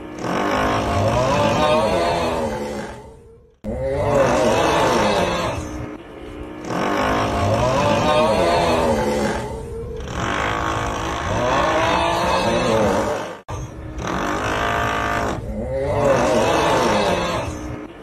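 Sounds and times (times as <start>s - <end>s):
groaning voice bending in pitch: 0.0s - 18.0s
drilling noise: 10.0s - 17.3s.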